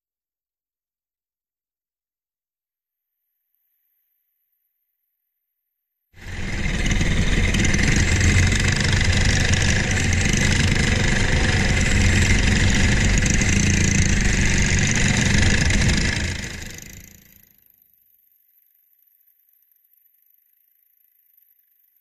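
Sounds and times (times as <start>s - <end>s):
kart engine running: 6.2s - 17.4s.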